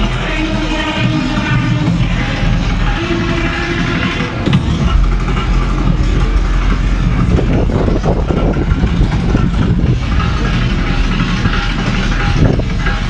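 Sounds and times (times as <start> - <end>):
boat engine rumbling: 0.0 - 13.0.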